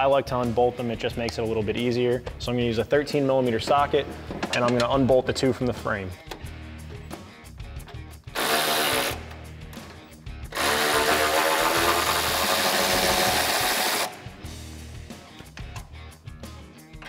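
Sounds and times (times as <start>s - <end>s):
background music: 0.0s - 17.0s
cordless power tool spinning: 8.4s - 9.2s, 10.5s - 14.1s.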